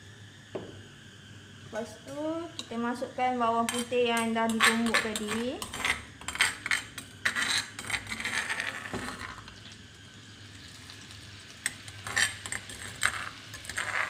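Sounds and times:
garlic sizzling in wok: 0:00.0 - 0:14.0
metal spoon scraping stone mortar: 0:03.6 - 0:09.4, 0:11.9 - 0:14.0.

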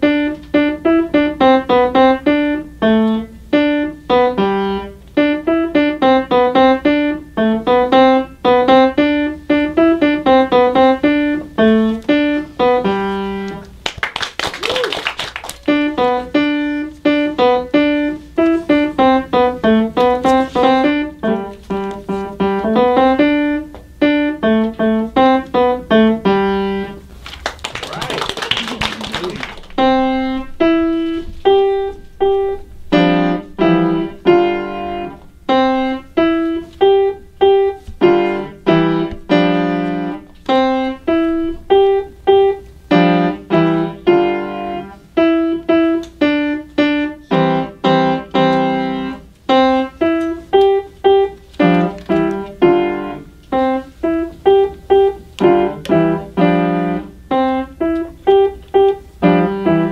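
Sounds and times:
piano melody: 0:00.0 - 0:14.0, 0:15.3 - 0:27.2, 0:28.6 - 0:59.9.

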